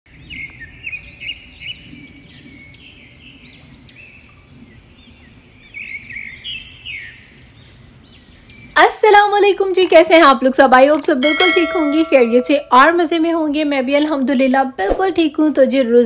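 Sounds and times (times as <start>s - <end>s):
small birds chirping: 0.2s - 10.0s.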